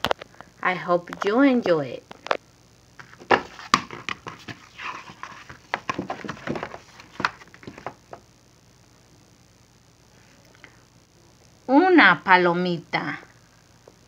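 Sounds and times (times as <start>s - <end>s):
paper crackling and rustling: 3.0s - 8.2s.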